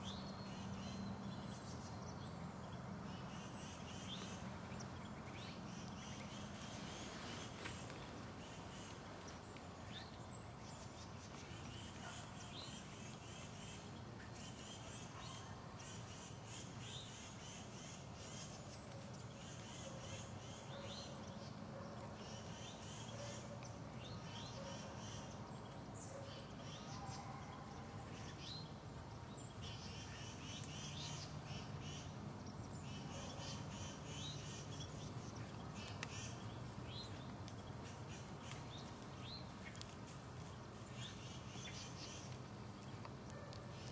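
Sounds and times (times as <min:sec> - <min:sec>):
birds chirping: 0:00.0 - 0:43.9.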